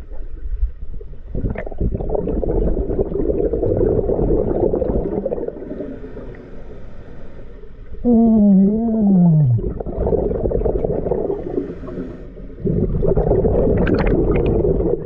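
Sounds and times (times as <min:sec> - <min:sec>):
gurgling exhaled bubbles: 0:01.0 - 0:06.4, 0:08.0 - 0:15.0
muffled hum through regulator: 0:06.3 - 0:12.8.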